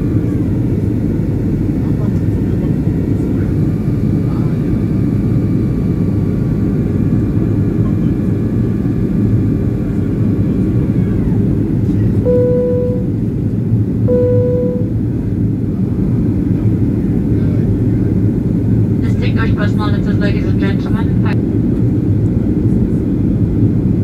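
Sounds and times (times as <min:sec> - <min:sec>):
airplane cabin engine rush: 0:00.0 - 0:24.0
faint high whine: 0:12.2 - 0:13.2, 0:14.0 - 0:15.0
short electronic chime tones: 0:12.3 - 0:13.1, 0:14.1 - 0:14.9.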